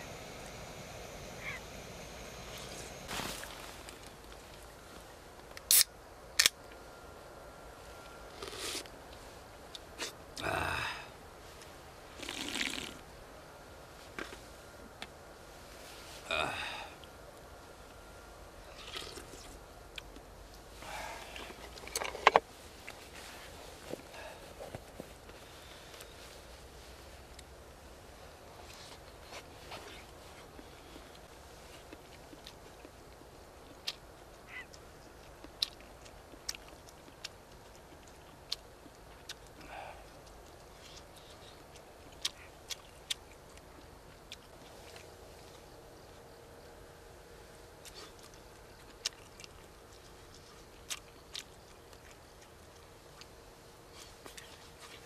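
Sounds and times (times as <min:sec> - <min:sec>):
person slurping soup: 0:12.2 - 0:13.0.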